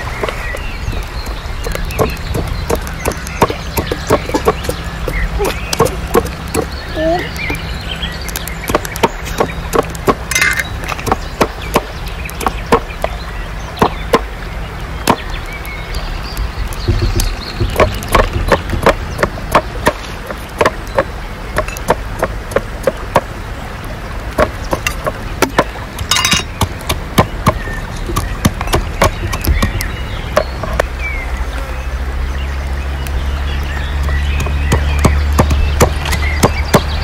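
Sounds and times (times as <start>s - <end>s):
sharp chopping strikes: 1.6s - 6.7s, 8.6s - 13.2s, 13.8s - 14.3s, 15.0s - 15.3s, 16.8s - 23.3s, 24.4s - 30.6s, 34.0s - 37.0s.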